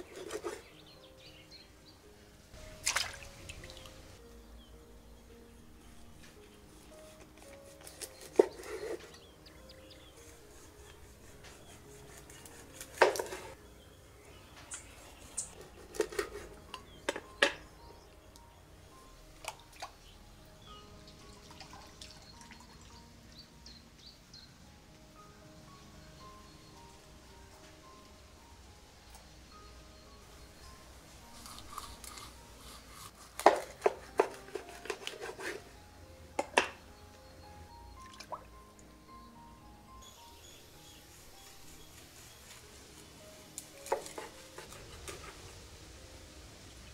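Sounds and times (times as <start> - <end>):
knife crunching through fish bone: 15.3 - 16.5, 31.4 - 35.5.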